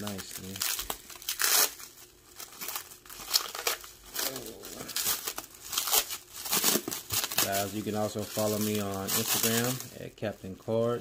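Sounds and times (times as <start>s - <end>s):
plastic wrap crinkling: 0.0s - 11.0s.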